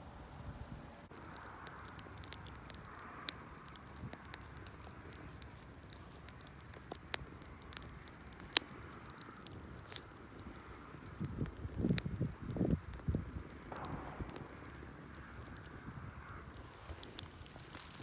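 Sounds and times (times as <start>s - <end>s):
wood fire crackling and popping: 0.4s - 18.0s
faint hiss: 13.6s - 18.0s.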